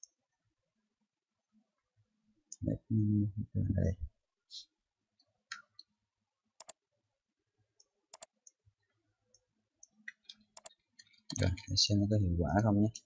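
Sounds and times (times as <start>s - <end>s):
computer mouse clicks: 6.6s - 6.8s, 7.8s - 8.6s, 9.3s - 11.6s.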